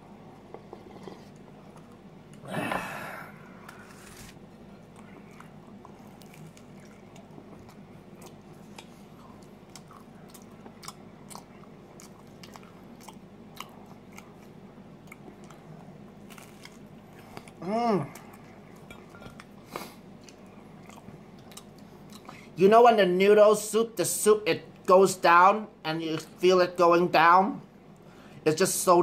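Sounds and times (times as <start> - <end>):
steady low hum: 0.0 - 29.0
pizza crust crunching: 3.7 - 14.5, 16.2 - 17.6
chewing with wet mouth clicks: 4.8 - 19.6, 20.2 - 22.4.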